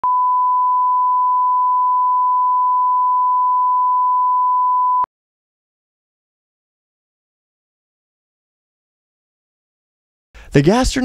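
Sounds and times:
test tone beep: 0.0 - 5.1.

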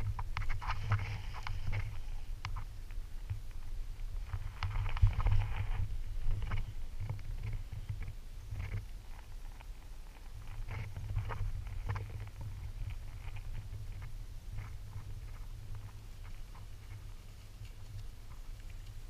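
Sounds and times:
light scratches and taps: 0.0 - 3.7
wind rumble on microphone: 0.0 - 19.0.

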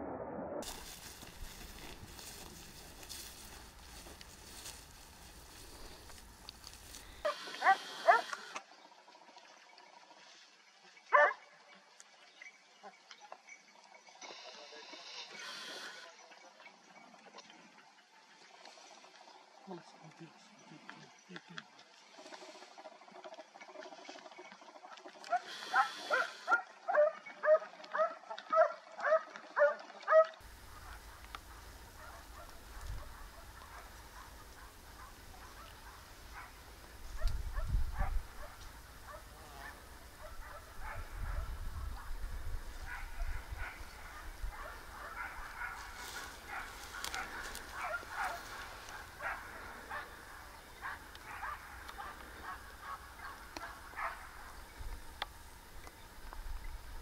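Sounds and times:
dog barking: 7.2 - 8.4, 11.1 - 11.4, 25.3 - 36.6, 37.2 - 42.2, 42.8 - 54.5
distant dog barking: 7.2 - 8.5, 11.1 - 11.4, 25.3 - 54.6
wind rumble on microphone: 30.5 - 46.9.

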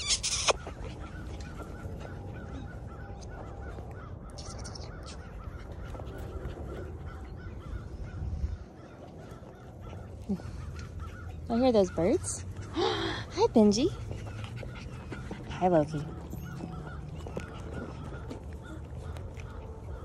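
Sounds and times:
birds calling: 0.0 - 20.0.

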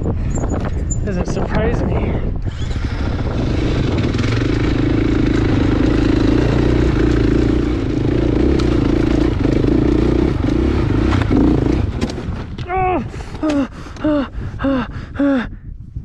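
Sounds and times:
dirt bike engine running: 2.4 - 14.3.

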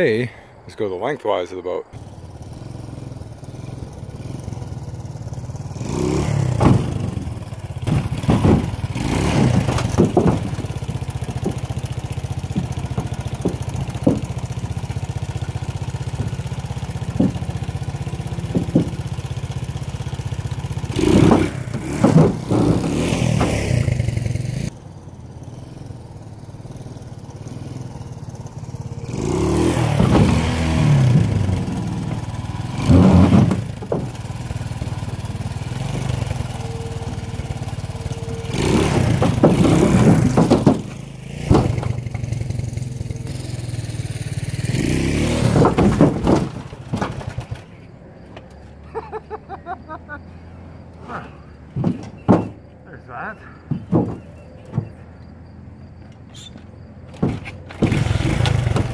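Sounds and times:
motorcycle engine throttle blips: 1.8 - 48.8, 49.8 - 58.9
knocks on aluminum hull: 6.5 - 11.8, 12.4 - 14.5, 18.4 - 19.1, 38.6 - 42.3, 51.8 - 52.6, 53.7 - 55.0.

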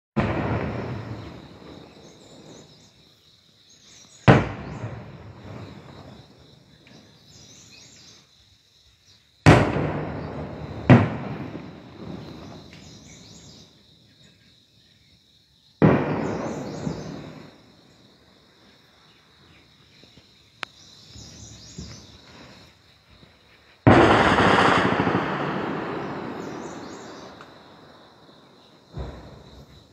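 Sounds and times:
distant artillery explosions: 0.2 - 2.9, 4.2 - 7.0, 9.4 - 13.4, 15.8 - 18.0, 23.8 - 29.9
rumbling echo: 23.9 - 29.5.

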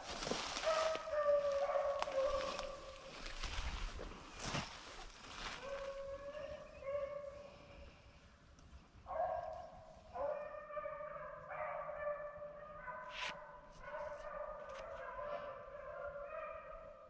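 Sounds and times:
hounds baying: 0.6 - 3.2, 5.6 - 7.5, 10.2 - 17.0.

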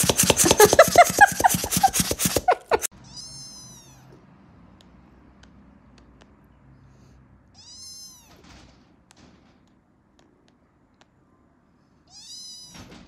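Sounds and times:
kitten mewing: 0.0 - 4.2, 7.6 - 8.4.

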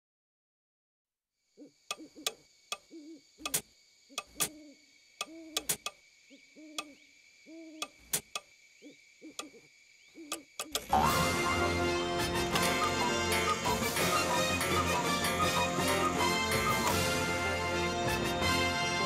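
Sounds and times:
owl hooting: 1.6 - 18.0
clock ticking: 10.3 - 11.0.

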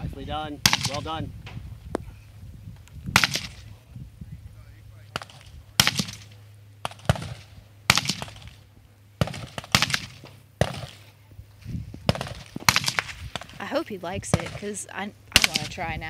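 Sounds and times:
distant gunshots: 0.6 - 1.2, 3.1 - 3.8, 5.1 - 11.2, 12.0 - 13.6, 14.3 - 15.8.

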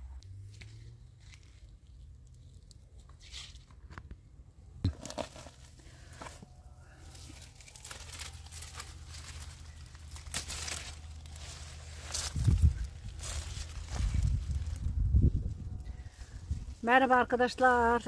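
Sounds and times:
leaves and stems rustling: 0.5 - 3.7, 5.0 - 18.0
steady low rumble: 5.9 - 16.9.

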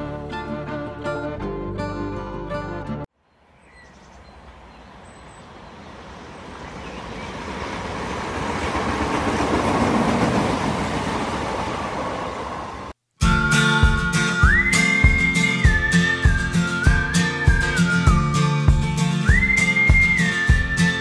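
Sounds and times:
music: 0.0 - 3.1, 13.2 - 21.0
train running noise: 5.6 - 13.0.

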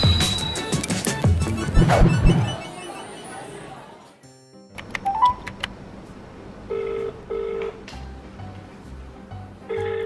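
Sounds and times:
telephone ringing tone: 6.7 - 7.8, 9.7 - 10.0.

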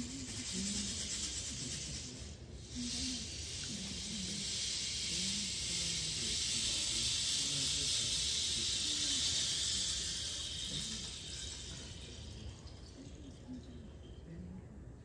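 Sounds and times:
rain stick hiss: 0.0 - 13.7.

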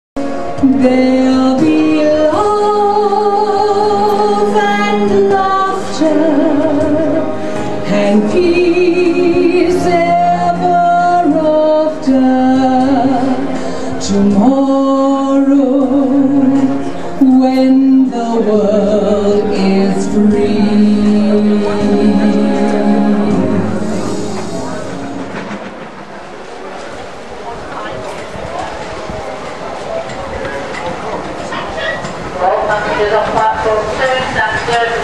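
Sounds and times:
woman singing with vibrato: 0.5 - 24.9.

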